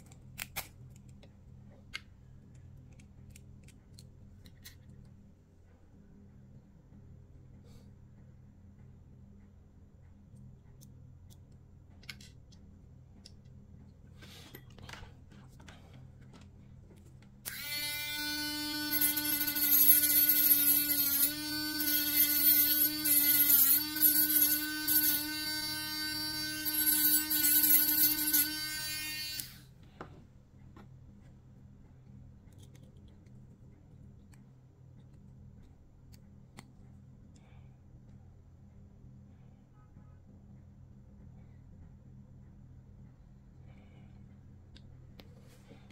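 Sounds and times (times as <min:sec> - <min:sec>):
rotary tool motor whine: 0:17.5 - 0:29.7.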